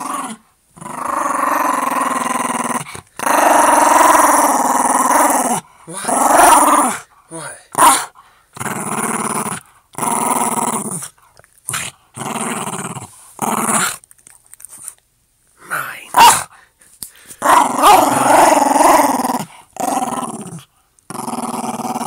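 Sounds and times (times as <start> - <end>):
dog barking: 7.8 - 8.1, 16.2 - 16.5, 17.5 - 18.3
dog play-growling: 8.6 - 14.9, 17.4 - 22.0.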